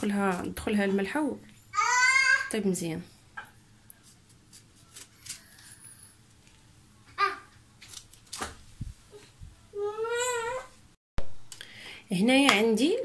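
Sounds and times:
high-pitched vocal cry: 0:01.8 - 0:02.5.

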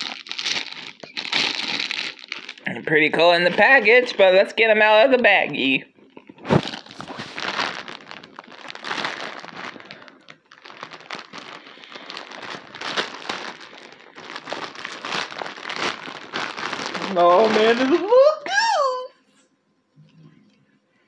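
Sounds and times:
plastic bag crinkling: 0:00.0 - 0:18.6.

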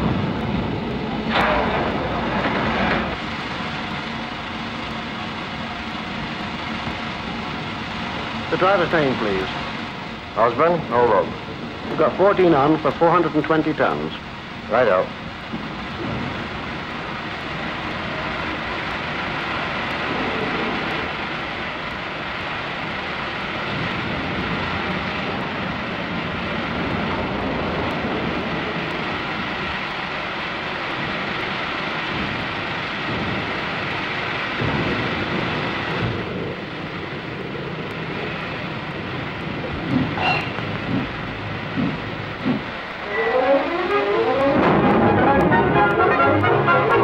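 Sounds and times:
low rumbles: 0:00.0 - 0:47.0
steam hissing roar: 0:00.0 - 0:47.0.

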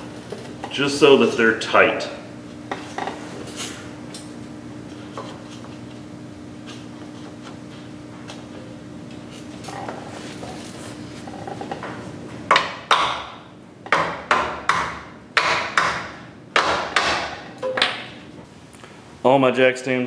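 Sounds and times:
hammer striking wood shims: 0:13.9 - 0:17.4.

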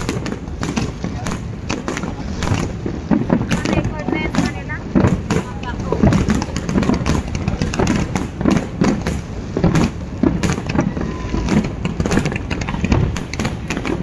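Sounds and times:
continuous low rumble: 0:00.0 - 0:14.0
fireworks bangs and crackles: 0:00.0 - 0:14.0.

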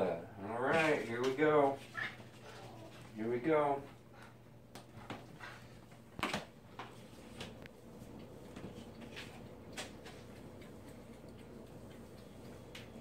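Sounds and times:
cats eating: 0:00.0 - 0:13.0.

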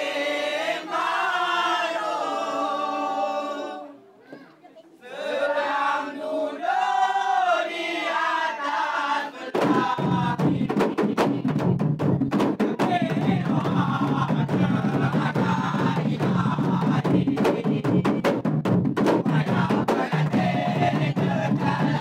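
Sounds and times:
men chanting in unison: 0:00.0 - 0:03.9, 0:05.1 - 0:11.7, 0:12.5 - 0:18.2, 0:19.2 - 0:22.0
hand drums beating rapidly: 0:09.6 - 0:22.0.

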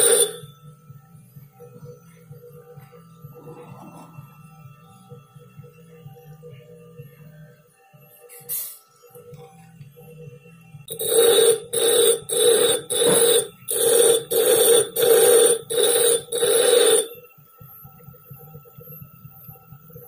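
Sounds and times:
grinder wheel whine: 0:00.0 - 0:00.5, 0:10.9 - 0:17.2.

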